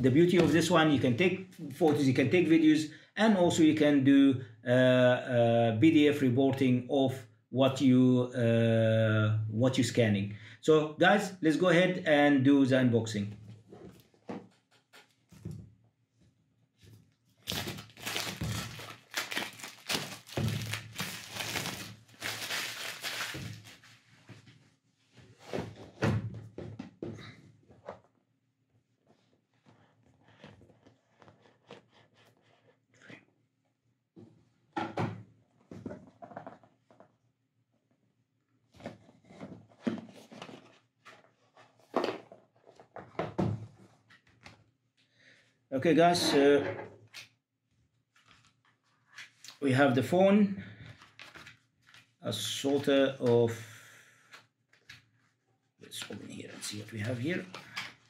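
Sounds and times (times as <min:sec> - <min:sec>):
packaging crinkling and tearing: 0:17.4 - 0:24.0.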